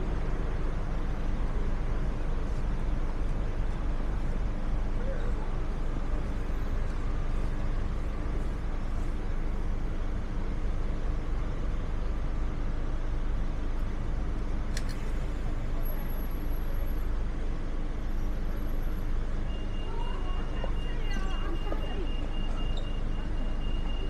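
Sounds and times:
city street traffic: 0:00.0 - 0:24.0
faint passers-by voices: 0:04.9 - 0:06.2, 0:19.6 - 0:24.0.

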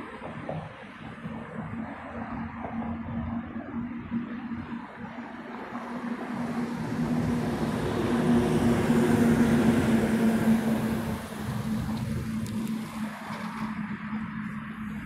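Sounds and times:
car driving past: 0:06.0 - 0:15.0.

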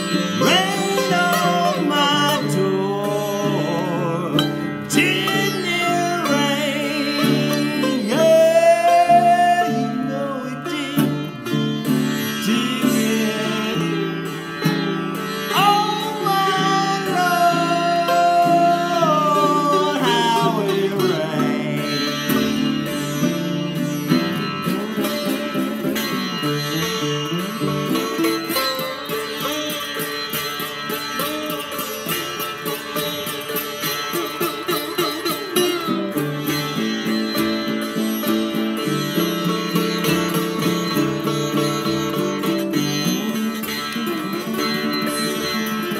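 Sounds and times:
strummed ukulele chords: 0:00.0 - 0:28.9
sitar sliding notes: 0:00.0 - 0:45.9
man singing: 0:00.4 - 0:14.8, 0:15.5 - 0:28.2, 0:42.9 - 0:45.9.

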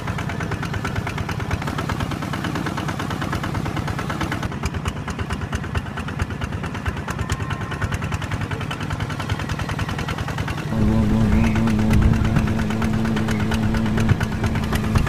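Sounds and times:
small engine chugging: 0:00.0 - 0:15.0
steady droning tone: 0:10.7 - 0:15.0.

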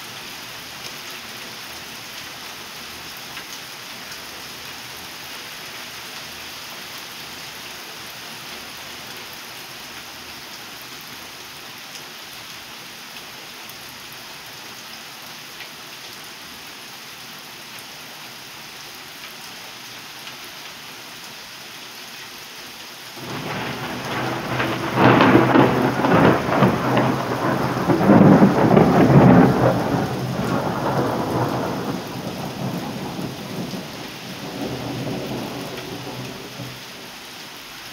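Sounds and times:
steady rain: 0:00.0 - 0:37.9
thunder rumble: 0:23.2 - 0:36.8.

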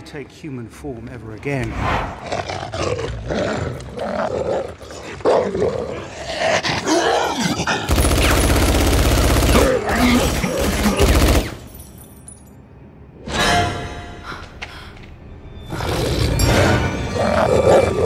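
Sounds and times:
automatic gunfire bursts: 0:07.9 - 0:11.6
creature snarling and roaring: 0:09.4 - 0:11.2.

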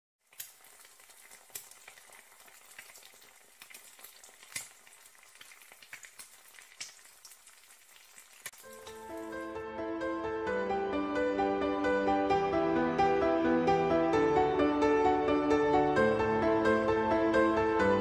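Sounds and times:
food sizzling in oil: 0:00.2 - 0:09.6
oil crackling pops: 0:00.2 - 0:09.6.

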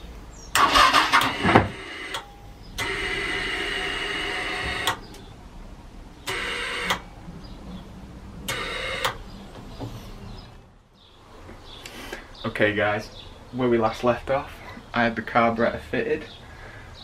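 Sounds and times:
starter motor cranking engine: 0:00.6 - 0:01.8.

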